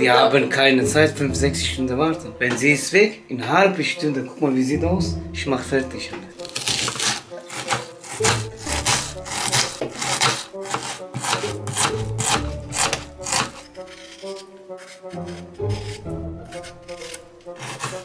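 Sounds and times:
soft background music: 0:00.0 - 0:18.0
knife slicing onion on cutting board: 0:06.4 - 0:18.0.

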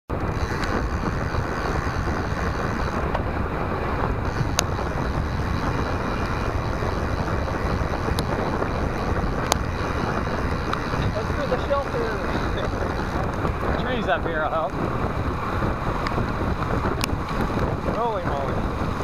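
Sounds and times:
sharp ticks: 0:00.1 - 0:03.3, 0:04.1 - 0:18.8
wind buffeting microphone: 0:00.1 - 0:19.0.

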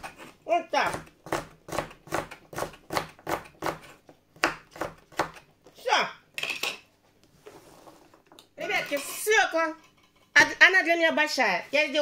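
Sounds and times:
knife chopping carrot on board: 0:00.0 - 0:05.5.

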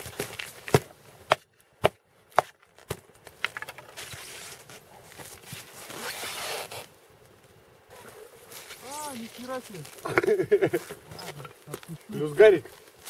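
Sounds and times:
scraping and rustling: 0:03.3 - 0:06.9, 0:07.9 - 0:13.0.

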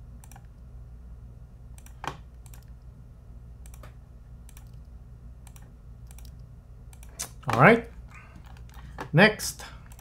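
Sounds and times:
low steady hum: 0:00.0 - 0:10.0
mouse and keyboard clicks: 0:01.8 - 0:02.7, 0:03.6 - 0:07.6.

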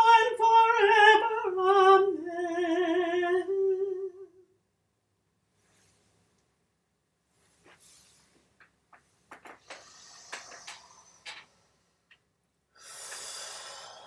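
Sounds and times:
faint rustling: 0:05.5 - 0:12.3
noisy breath in: 0:09.6 - 0:12.1, 0:12.7 - 0:14.0.

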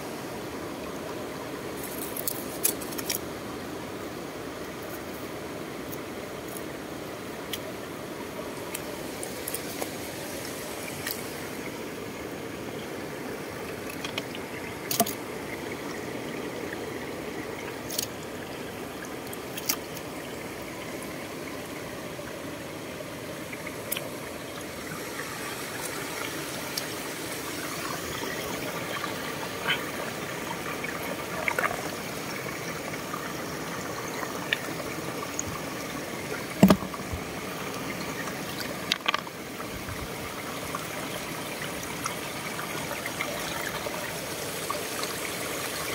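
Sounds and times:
water trickling between rocks: 0:01.7 - 0:03.6, 0:04.6 - 0:45.9
sharp clicks and knocks: 0:36.6 - 0:37.2, 0:38.9 - 0:39.3.

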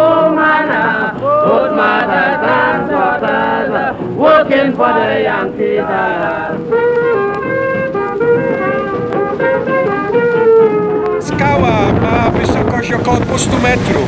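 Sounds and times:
men singing calypso song: 0:00.0 - 0:06.6.

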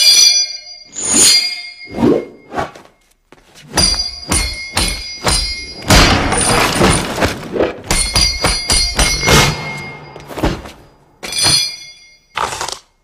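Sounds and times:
punches and blows landing: 0:03.7 - 0:11.8.

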